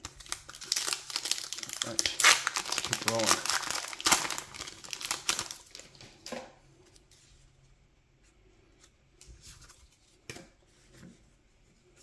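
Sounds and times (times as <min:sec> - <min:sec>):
foil wrapper crinkling: 0:00.0 - 0:06.1.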